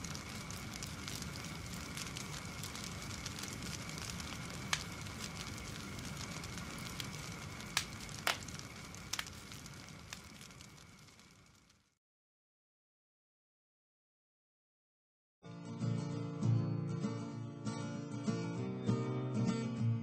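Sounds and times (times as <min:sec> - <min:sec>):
campfire crackling and popping: 0:00.0 - 0:12.0.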